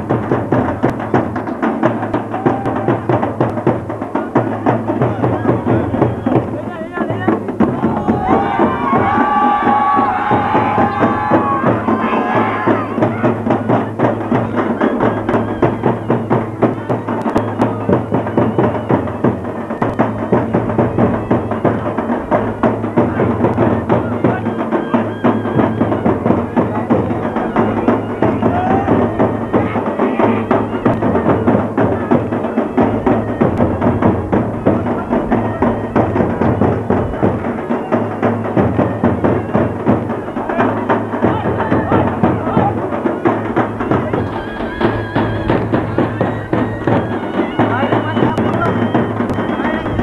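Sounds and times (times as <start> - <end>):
fast rhythmic drumming: 0.0 - 50.0
people beating their chests: 7.4 - 14.0.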